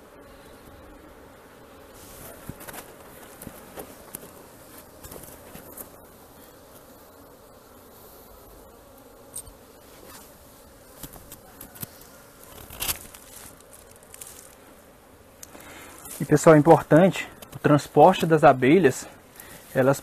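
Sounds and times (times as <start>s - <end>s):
honeybees buzzing: 0.0s - 20.0s.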